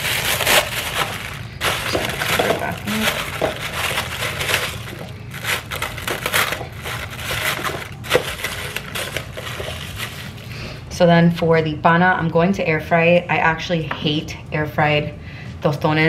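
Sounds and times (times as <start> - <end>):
plastic bag crinkling: 0.0 - 10.6.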